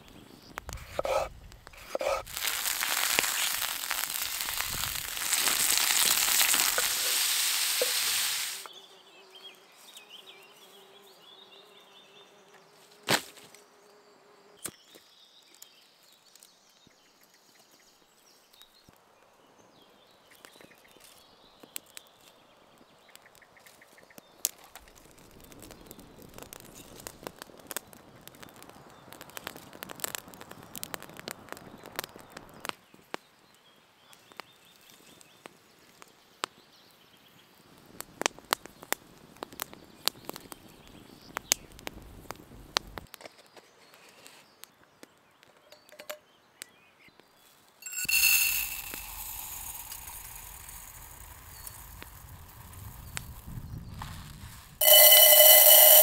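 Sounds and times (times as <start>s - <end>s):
campfire crackling and popping: 0.0s - 8.7s, 24.2s - 33.3s, 37.6s - 43.2s, 47.8s - 56.0s
loud sizzling hiss: 0.0s - 8.7s, 47.8s - 56.0s.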